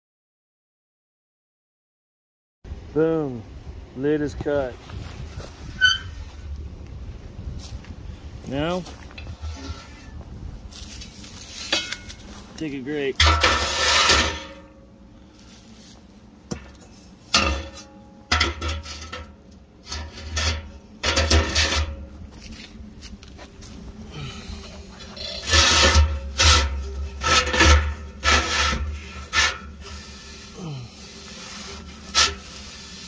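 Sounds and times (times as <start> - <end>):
metal grate scraping in tank: 5.8 - 6.2, 9.2 - 10.2, 12.9 - 14.8, 16.8 - 22.1, 24.7 - 33.0.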